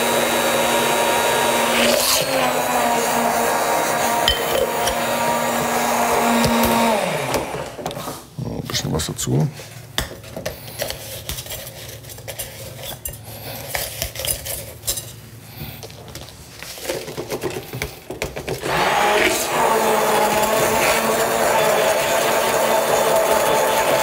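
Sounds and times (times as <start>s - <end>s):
immersion blender running: 0.0s - 8.0s, 18.6s - 24.0s
jars and utensils clinking: 4.1s - 6.8s.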